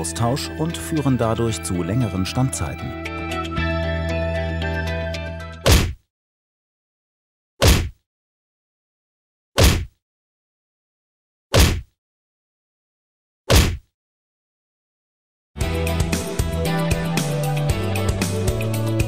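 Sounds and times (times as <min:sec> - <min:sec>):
music: 0:00.0 - 0:05.6, 0:15.6 - 0:19.0.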